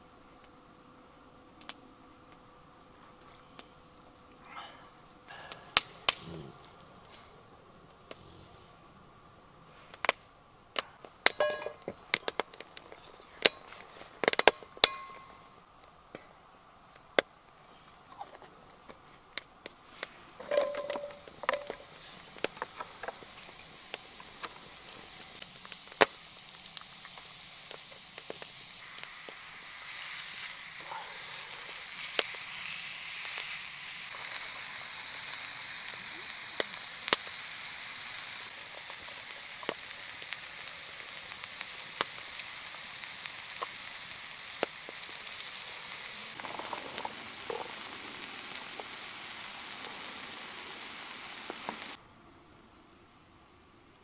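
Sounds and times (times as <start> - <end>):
food sizzling in a pan: 5.3 - 8.7, 10.8 - 15.7, 19.8 - 52.0.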